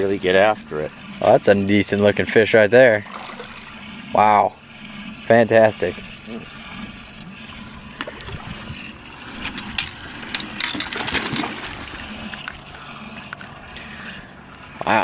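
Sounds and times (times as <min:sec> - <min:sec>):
water lapping beside a boat: 0:00.0 - 0:15.0
fish thrashing at the surface: 0:03.0 - 0:14.0.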